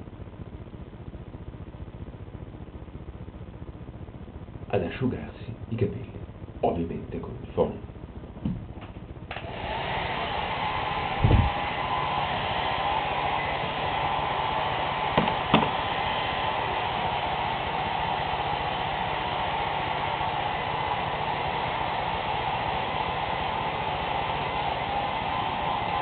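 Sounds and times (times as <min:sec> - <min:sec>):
hair dryer running: 0:09.3 - 0:26.0.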